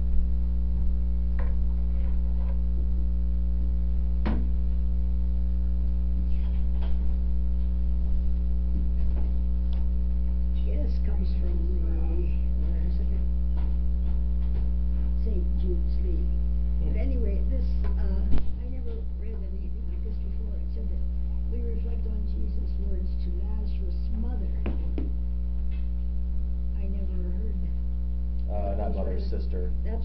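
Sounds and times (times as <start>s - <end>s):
electrical mains hum: 0.0s - 30.0s
sharp knock: 4.2s - 4.6s.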